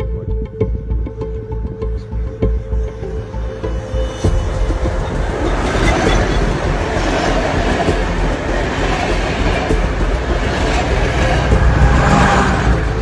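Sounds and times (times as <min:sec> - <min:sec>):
train wheels rumbling and rattling: 0:04.2 - 0:13.0.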